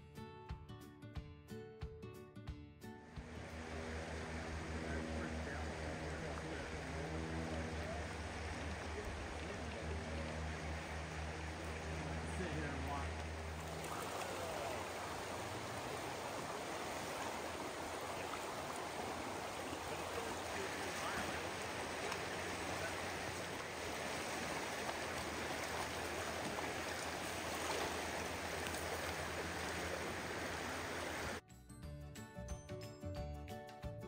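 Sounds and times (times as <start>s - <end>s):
river rushing over gravel: 3.3s - 31.4s.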